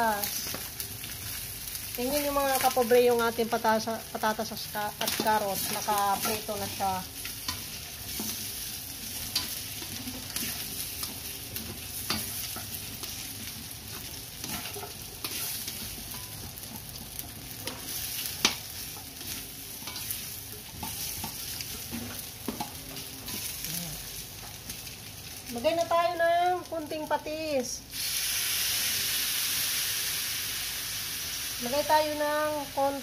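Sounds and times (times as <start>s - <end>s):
food sizzling in oil: 0.0s - 33.0s
spatula scraping and knocking pan: 13.9s - 23.5s.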